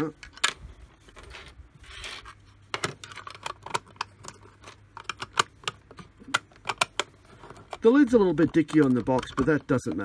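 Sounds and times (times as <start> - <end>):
hard plastic clicking: 2.8 - 10.0.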